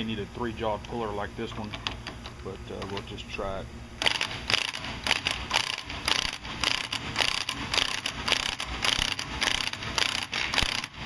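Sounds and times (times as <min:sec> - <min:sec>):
pneumatic air ratchet bursts: 0:04.0 - 0:11.0.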